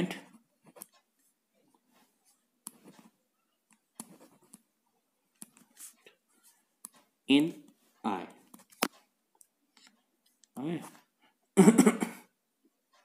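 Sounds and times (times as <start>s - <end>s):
pen scratching on paper: 3.9s - 4.7s, 5.4s - 6.6s.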